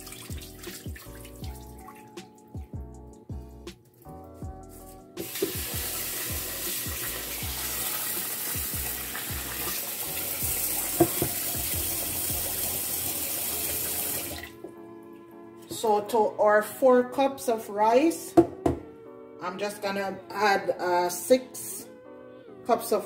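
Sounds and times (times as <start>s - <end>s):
water trickling into sink: 0.0s - 2.2s
tap running into pot: 5.2s - 5.8s, 11.0s - 11.6s.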